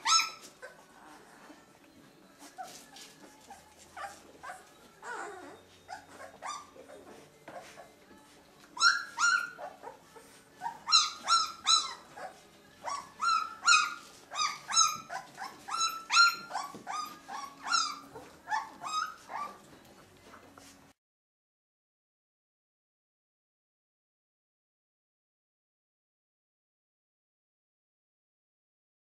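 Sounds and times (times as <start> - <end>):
puppies squealing: 0.0 - 1.7, 2.3 - 8.0, 8.7 - 19.7.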